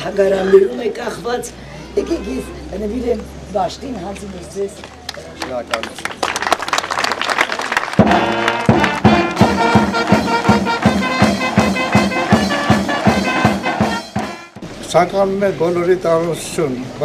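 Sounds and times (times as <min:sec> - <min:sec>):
people clapping: 0:04.1 - 0:14.0
brass band playing: 0:08.0 - 0:14.7.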